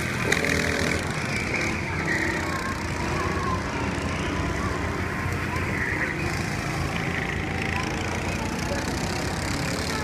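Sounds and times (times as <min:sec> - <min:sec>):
distant go-kart engines buzzing: 0:00.0 - 0:10.0.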